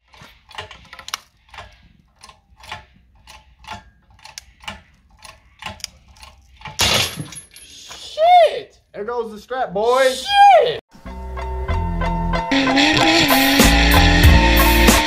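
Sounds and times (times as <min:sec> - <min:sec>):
ratchet strap clicking: 0:00.0 - 0:06.8.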